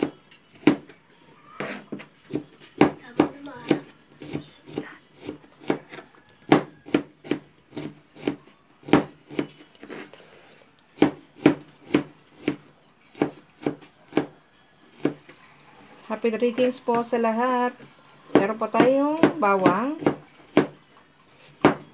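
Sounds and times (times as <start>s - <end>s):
knife chopping onion on board: 0.0s - 0.9s, 1.6s - 10.0s, 10.9s - 15.3s, 18.3s - 20.8s, 21.5s - 21.9s.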